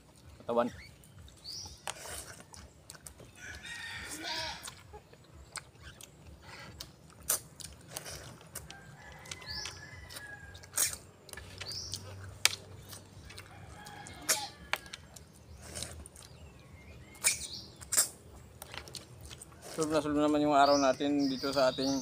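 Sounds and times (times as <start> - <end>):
sucking and clicking while eating: 0.1 - 3.7, 4.6 - 20.5
bird chirps: 0.2 - 3.5, 4.8 - 7.4, 9.3 - 13.4, 14.1 - 19.0, 20.2 - 22.0.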